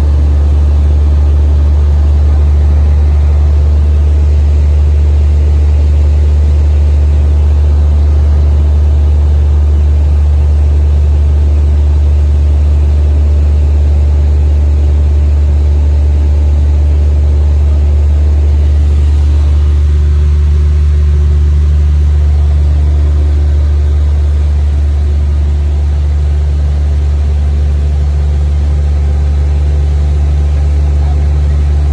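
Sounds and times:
light aircraft engine drone: 0.0 - 31.9
rushing air noise: 18.2 - 25.6.

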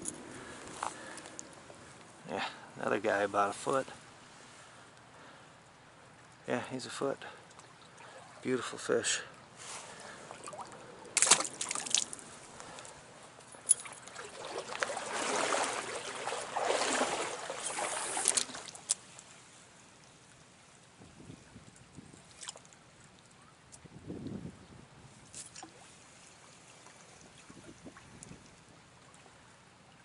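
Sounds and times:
stream trickling: 0.0 - 24.4, 25.2 - 30.0
water splashing and sloshing: 7.3 - 21.0, 21.7 - 23.4, 25.3 - 30.0.

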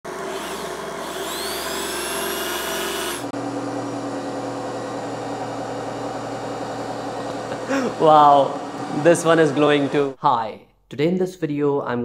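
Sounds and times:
electric motor whine rising: 0.0 - 10.2
steady low machine hum: 3.1 - 10.2.

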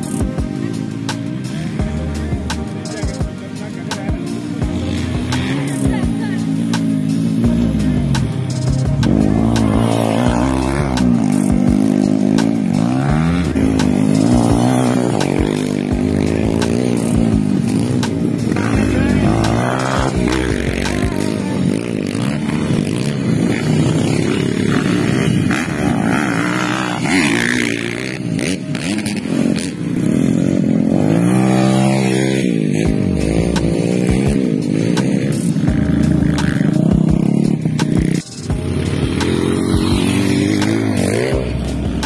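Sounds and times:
dirt bike engines revving: 0.0 - 42.0.

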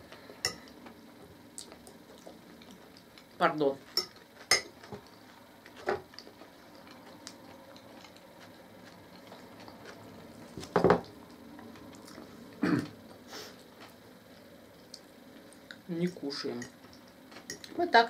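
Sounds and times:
soft chewing: 0.2 - 3.4, 4.1 - 15.9
fork clinking on plate: 4.0 - 4.7.

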